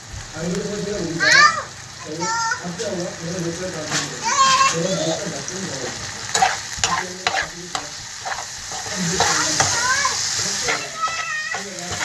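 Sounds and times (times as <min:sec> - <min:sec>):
vegetables sizzling in a frying pan: 0:00.0 - 0:12.0
utensil scraping a pan: 0:03.8 - 0:04.8, 0:06.3 - 0:12.0.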